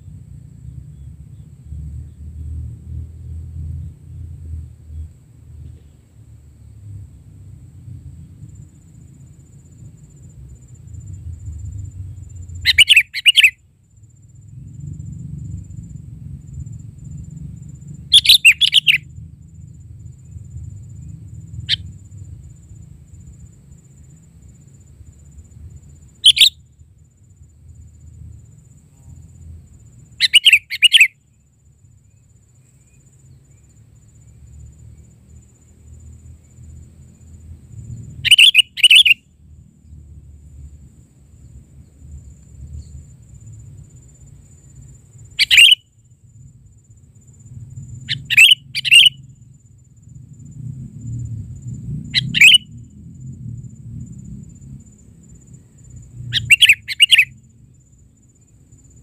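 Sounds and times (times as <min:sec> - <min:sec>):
bird calling: 0:12.6 - 0:13.6, 0:18.1 - 0:19.0, 0:26.2 - 0:26.6, 0:30.2 - 0:31.2, 0:38.2 - 0:39.2, 0:45.4 - 0:45.8, 0:48.1 - 0:49.2, 0:52.2 - 0:52.6, 0:56.3 - 0:57.3.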